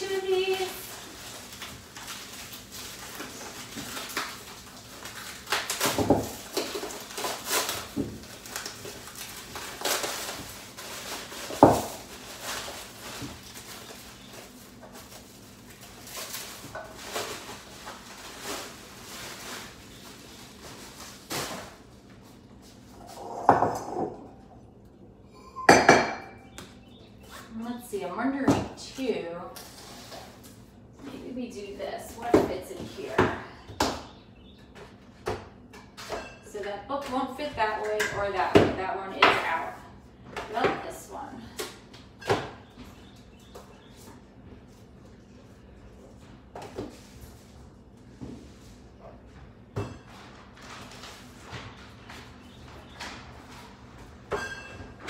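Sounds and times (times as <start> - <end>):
plastic bag rustling: 0.0 - 23.0
bowls and fruit knocking on countertop: 23.4 - 24.3, 25.7 - 26.4.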